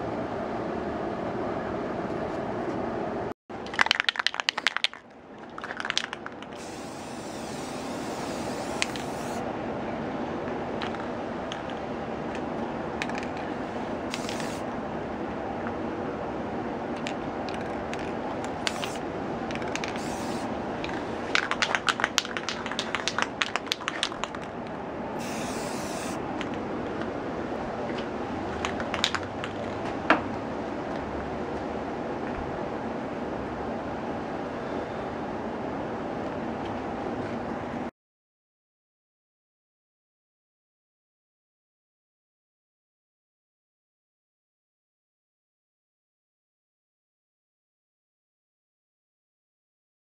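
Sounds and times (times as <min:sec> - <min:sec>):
spray can rattling clicks: 0:03.6 - 0:09.4, 0:13.0 - 0:13.4, 0:14.1 - 0:14.6, 0:17.0 - 0:26.6, 0:28.6 - 0:29.8
aerosol spray hissing: 0:06.6 - 0:09.4, 0:14.1 - 0:14.6, 0:18.6 - 0:19.0, 0:19.7 - 0:20.5, 0:25.2 - 0:26.2.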